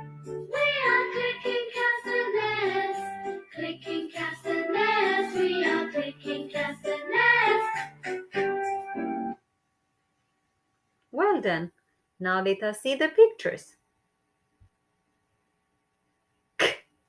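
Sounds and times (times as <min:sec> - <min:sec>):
instrumental backing music: 0:00.0 - 0:09.4
person singing children's song: 0:00.4 - 0:08.5.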